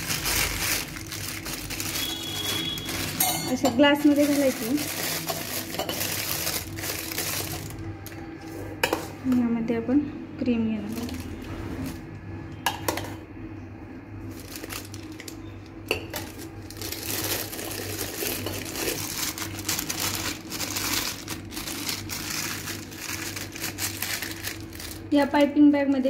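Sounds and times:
plastic piping bag crinkling: 0.0 - 8.0, 10.8 - 12.0, 14.2 - 15.5, 16.2 - 25.6.

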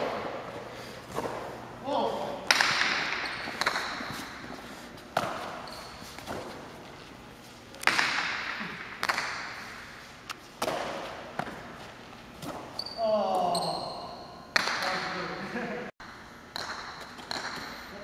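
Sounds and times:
ball cracking against walls: 2.4 - 4.4, 5.1 - 6.7, 7.8 - 9.6, 10.6 - 11.8, 14.5 - 15.0, 16.5 - 17.8.

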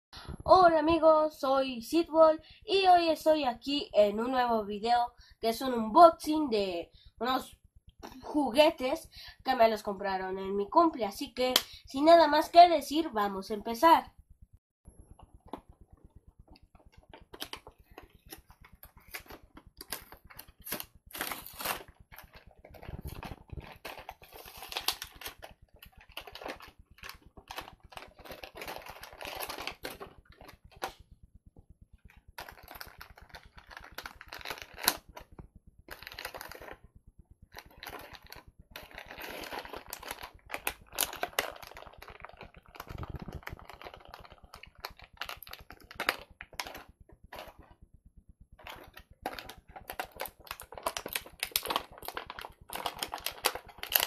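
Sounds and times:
packaging rustling: 16.8 - 31.0, 32.4 - 35.3, 35.9 - 36.8, 37.5 - 47.7, 48.6 - 54.0
packaging clicks and taps: 48.6 - 54.0.

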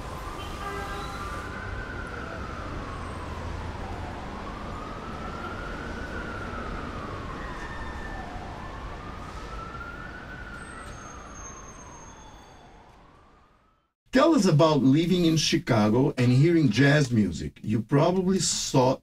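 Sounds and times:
siren wailing: 0.0 - 13.9.

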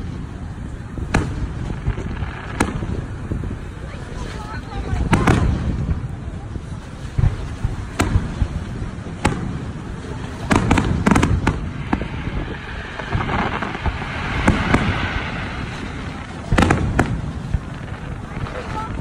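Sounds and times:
hissing crackle: 0.0 - 19.0
firework shells bursting: 7.1 - 19.0.

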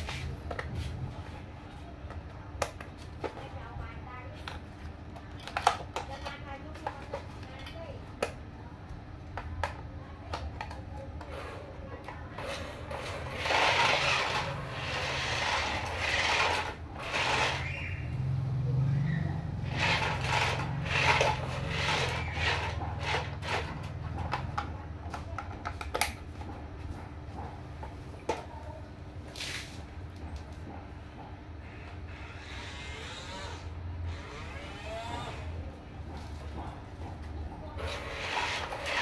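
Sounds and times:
toy truck motor whirring: 12.4 - 18.4, 19.0 - 24.4, 31.6 - 35.7, 37.8 - 39.0.

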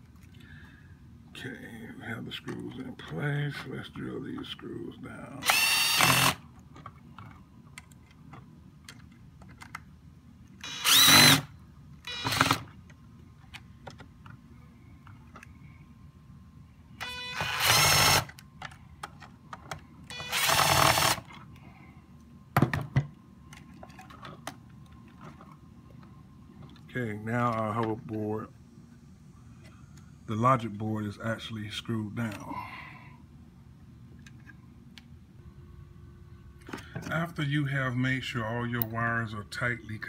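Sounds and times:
electric drill driving screws: 5.4 - 6.4, 10.6 - 11.5, 12.1 - 12.7, 17.0 - 18.3, 20.1 - 21.3.

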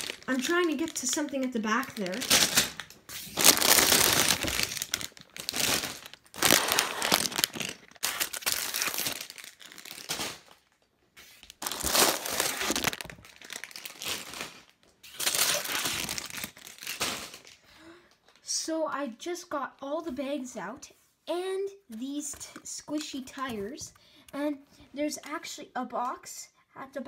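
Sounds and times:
plastic bags crinkling: 0.0 - 17.6.

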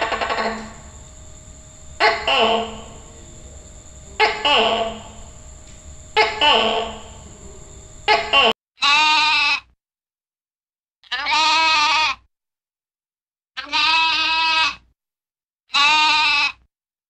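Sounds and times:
sheep bleating: 8.8 - 9.6, 11.1 - 12.2, 13.6 - 14.8, 15.7 - 16.6.

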